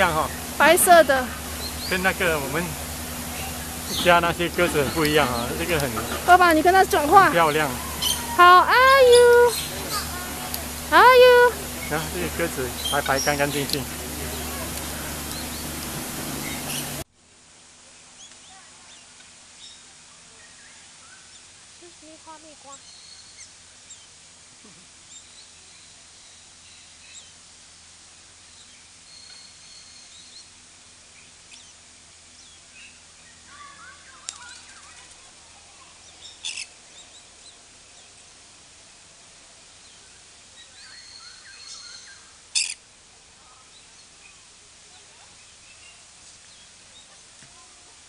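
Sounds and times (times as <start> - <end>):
birds whistling and chirping: 3.3 - 10.1, 15.2 - 17.0
shrill bird calls: 7.0 - 10.1.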